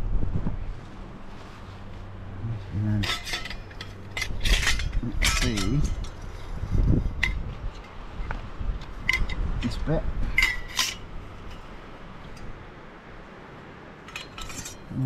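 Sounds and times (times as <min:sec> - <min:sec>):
wind rumble on microphone: 0:00.0 - 0:13.3
metal parts clinking and rattling: 0:03.0 - 0:06.5, 0:08.8 - 0:11.7, 0:14.0 - 0:15.0.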